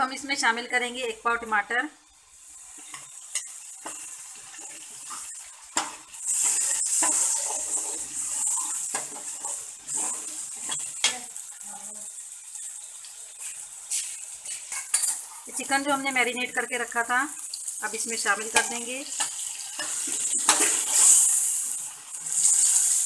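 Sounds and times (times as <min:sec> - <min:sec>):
oil sizzling: 0:00.0 - 0:23.0
metal spatula scraping a pan: 0:02.5 - 0:11.3, 0:13.0 - 0:15.5, 0:18.4 - 0:23.0.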